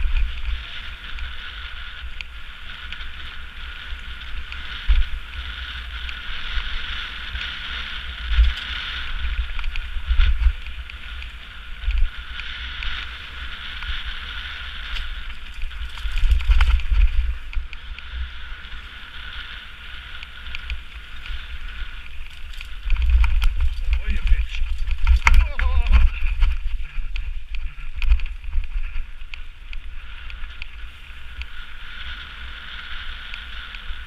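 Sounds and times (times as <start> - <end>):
bike rattling: 0.0 - 34.0
wind on microphone: 0.0 - 34.0
tyres hissing on gravel: 0.6 - 34.0.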